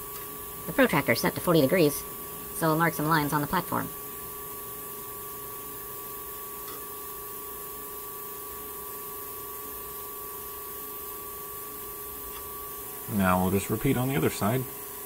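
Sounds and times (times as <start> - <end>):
faint constant tones: 0.0 - 15.0
even hiss: 10.5 - 14.9.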